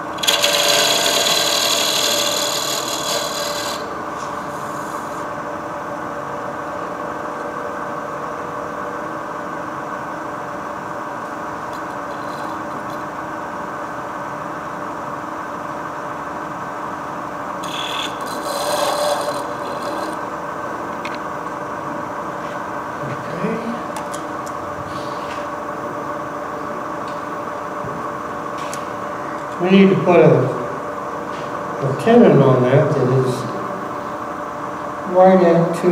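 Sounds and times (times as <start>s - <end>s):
turning tool cutting wood: 0.0s - 5.2s, 17.6s - 20.3s
wood lathe humming: 0.0s - 5.4s, 11.8s - 13.5s, 17.5s - 21.1s.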